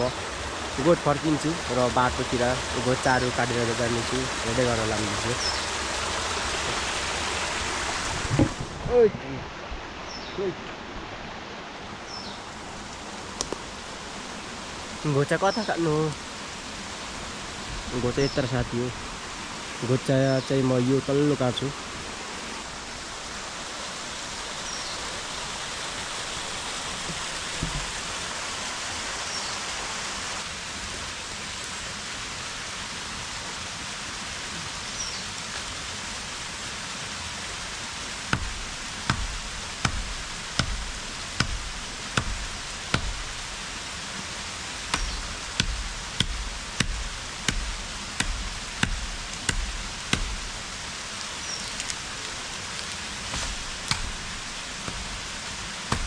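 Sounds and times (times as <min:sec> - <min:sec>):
blade chopping fodder: 0:44.9 - 0:50.6, 0:53.3 - 0:56.0.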